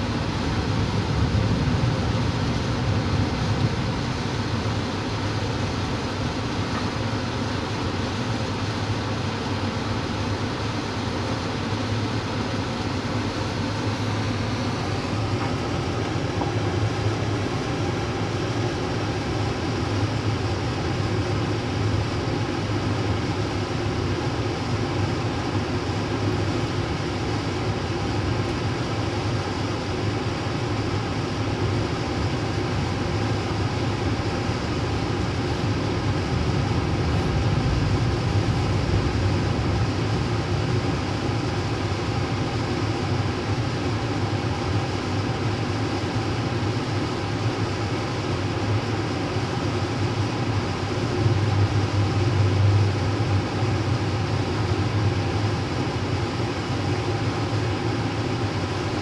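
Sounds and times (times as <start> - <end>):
train wheels rumbling on rails: 36.1 - 42.2.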